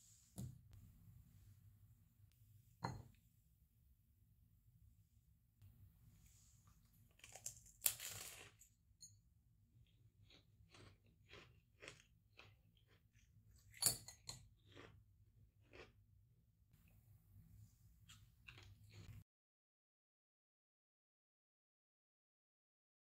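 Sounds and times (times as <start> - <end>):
chewing: 9.8 - 15.0, 15.6 - 16.0, 18.1 - 19.2
meringue crunching bite: 10.2 - 13.1.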